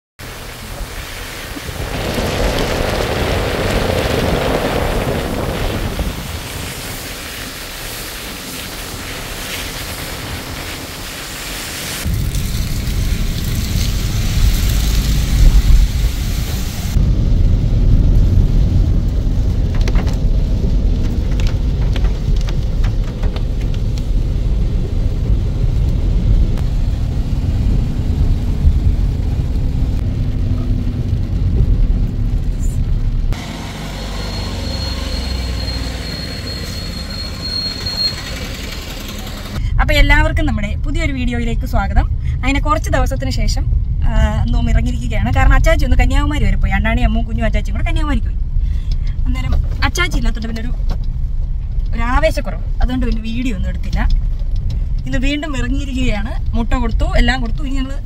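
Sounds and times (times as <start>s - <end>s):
heavy low rumble: 0.2s - 33.7s, 36.6s - 58.0s
rain hiss: 0.2s - 39.8s
vehicle driving on wet road: 0.2s - 58.0s.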